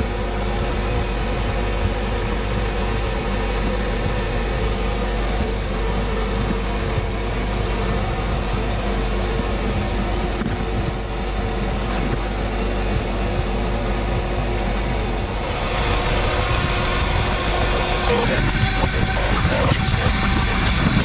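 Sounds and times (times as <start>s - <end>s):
vacuum cleaner motor running: 0.0s - 21.0s.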